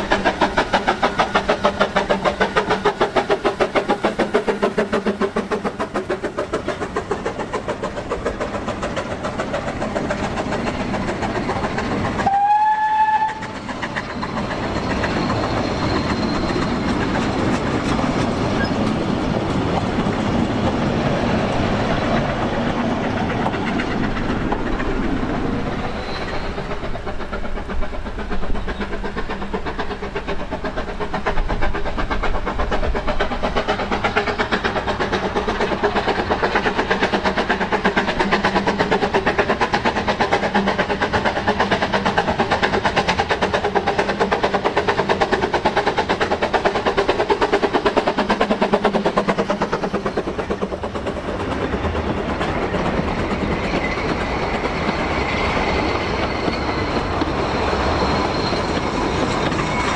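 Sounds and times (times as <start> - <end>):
train coaches rumbling on rails: 0.0 - 59.9
steam whistle blast: 12.2 - 13.6.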